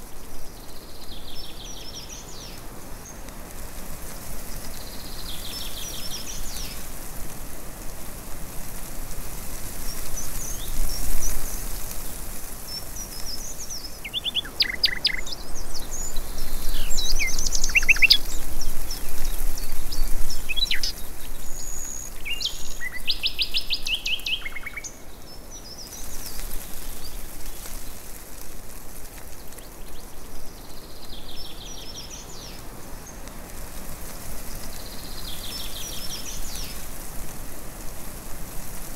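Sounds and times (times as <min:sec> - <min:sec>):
steady background hiss: 0:00.0 - 0:38.9
birds chirping and calling: 0:12.8 - 0:25.0
bird trills: 0:14.0 - 0:15.4, 0:16.7 - 0:18.3.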